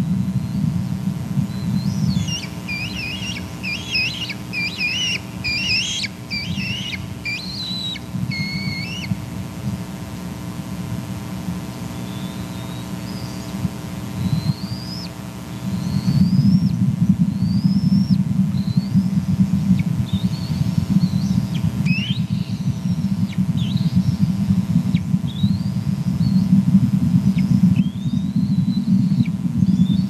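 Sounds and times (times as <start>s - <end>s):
low steady rumble: 0.0s - 30.0s
faint rising whistles: 1.5s - 9.1s, 20.1s - 24.3s
young eagle begging calls: 1.8s - 9.2s, 19.8s - 24.0s.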